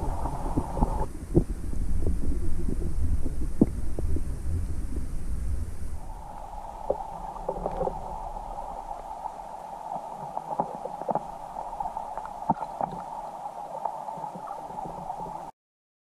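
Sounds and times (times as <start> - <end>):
muffled underwater stream rushing: 0.0 - 15.5
small clicks and pops: 10.2 - 13.2.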